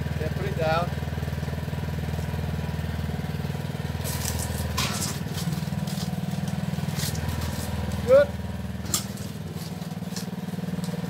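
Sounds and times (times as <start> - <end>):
lawn mower engine running: 0.0 - 11.0
scraping clatter: 4.0 - 8.1, 8.8 - 11.0.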